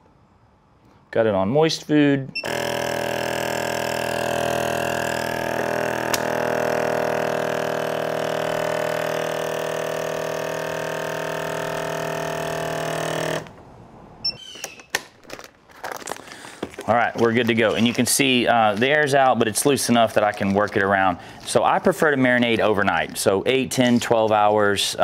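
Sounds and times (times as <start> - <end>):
vacuum sealer pump running: 2.4 - 13.6
sharp click: 6.1 - 6.3.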